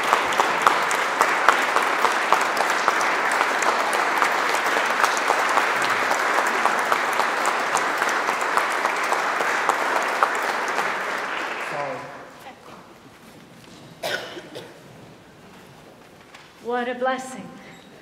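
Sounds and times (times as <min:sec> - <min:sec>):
crowd clapping: 0:00.0 - 0:12.4.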